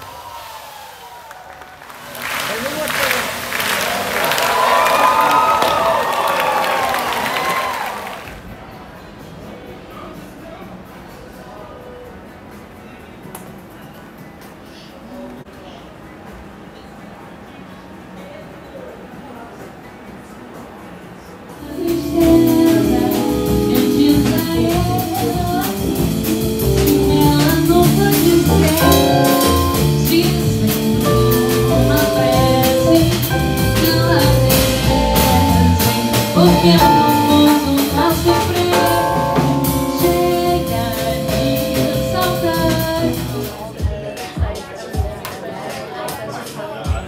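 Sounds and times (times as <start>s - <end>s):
electric bass: 21.6s - 43.6s
woman singing: 21.6s - 43.6s
piano: 21.6s - 44.0s
drum kit: 21.6s - 47.0s.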